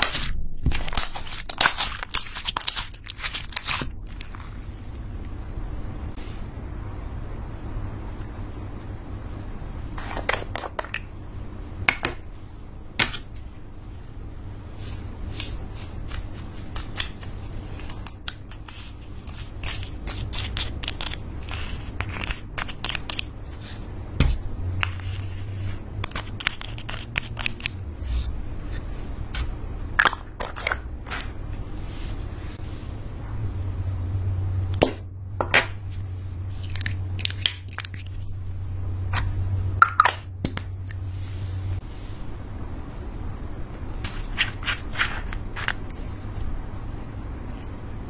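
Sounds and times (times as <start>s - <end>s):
low steady hum: 0.0s - 48.0s
plastic spatula scraping: 44.0s - 46.0s.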